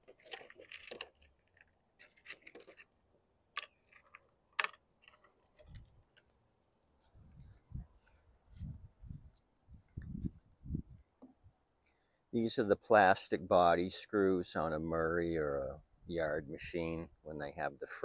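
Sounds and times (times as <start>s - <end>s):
clicks of small parts handled: 3.5s - 7.2s
dull low thumps: 7.2s - 11.0s.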